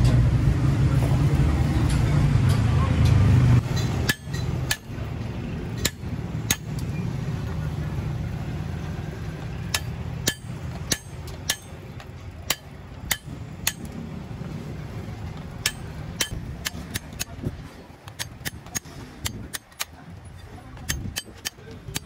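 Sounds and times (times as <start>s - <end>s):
hammer striking steel punch: 3.6s - 5.0s, 5.8s - 6.8s, 9.7s - 14.0s, 15.6s - 17.5s, 18.1s - 20.0s, 20.8s - 22.0s.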